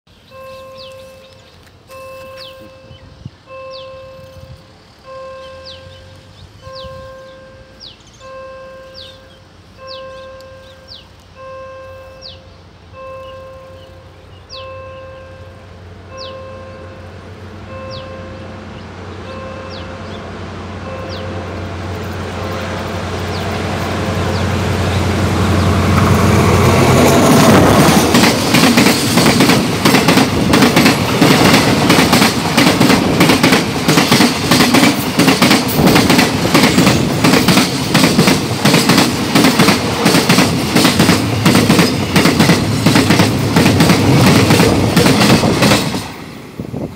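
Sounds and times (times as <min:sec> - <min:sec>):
locomotive engine humming: 0:00.1 - 0:46.9
train wheels clacking over rail joints: 0:21.9 - 0:46.3.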